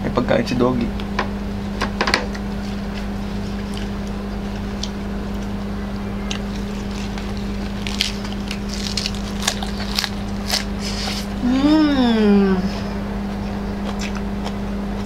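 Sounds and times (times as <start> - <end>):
steady machine hum: 0.0 - 15.0
lettuce being torn and chewed: 3.0 - 5.5, 6.3 - 11.4, 13.8 - 15.0.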